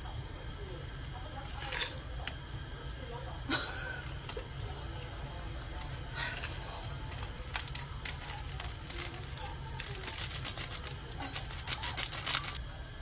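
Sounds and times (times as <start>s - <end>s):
plastic sachet crinkling: 7.4s - 12.6s.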